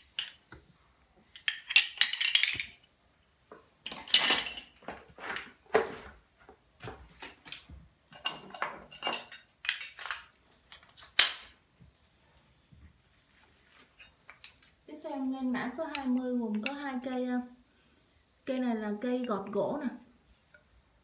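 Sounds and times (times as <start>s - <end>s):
metal hand tools clinking: 1.3s - 2.8s, 3.8s - 4.8s, 8.1s - 10.3s.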